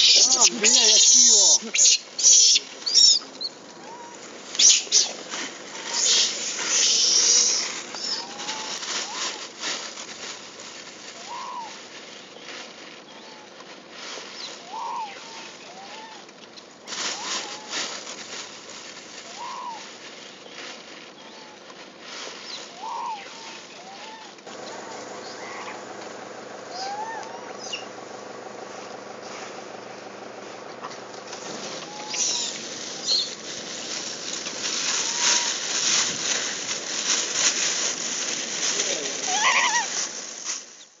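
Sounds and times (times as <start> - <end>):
monkey wavering call: 0.0 - 9.4, 11.2 - 11.8, 14.6 - 16.3, 19.2 - 19.9, 22.7 - 25.9, 26.6 - 28.0, 31.7 - 33.3, 34.8 - 35.7, 39.2 - 40.0
rustling and scuffling: 0.0 - 41.0
steady hiss: 0.0 - 41.0
short animal call: 11.2 - 11.8, 19.3 - 19.9, 22.7 - 25.9, 26.6 - 28.0, 31.5 - 33.3, 39.2 - 40.0.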